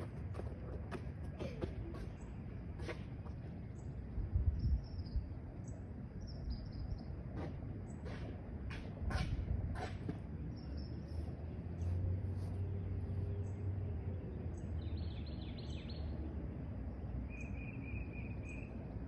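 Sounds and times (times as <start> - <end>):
steady low rumble: 0.0 - 15.3
bird chirps: 17.3 - 18.8.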